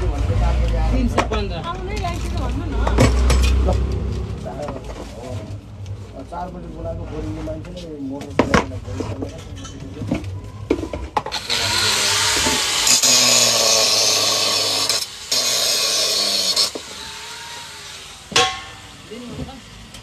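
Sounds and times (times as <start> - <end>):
angle grinder cutting metal: 11.3 - 20.0.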